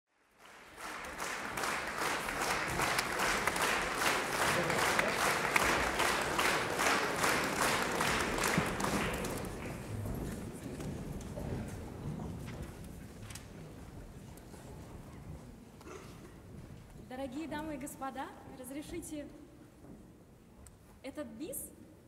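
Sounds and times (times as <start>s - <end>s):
audience applauding: 0.2s - 11.3s.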